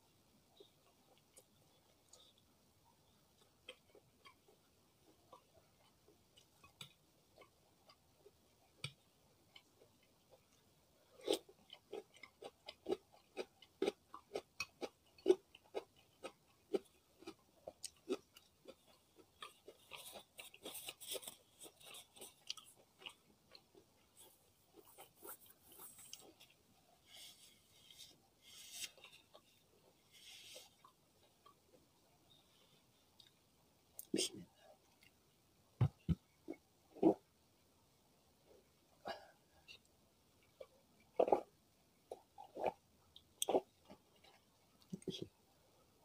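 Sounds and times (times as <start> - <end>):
chewing food: 0.5 - 28.1, 42.1 - 45.2.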